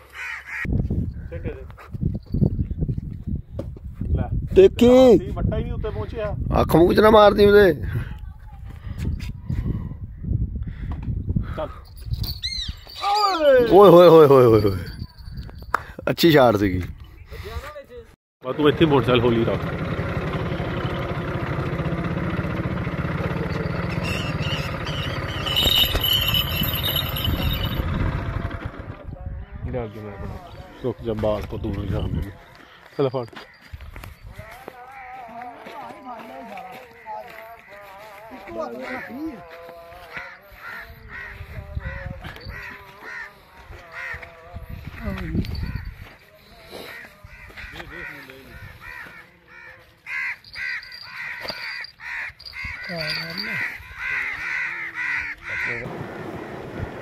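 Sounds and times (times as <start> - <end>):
bird's harsh crow-like calls: 0.0 - 1.4, 23.7 - 27.8, 38.7 - 44.6, 45.6 - 55.9
high wavering squeal: 12.1 - 14.0, 23.4 - 28.0
motorcycle engine running: 18.6 - 29.6.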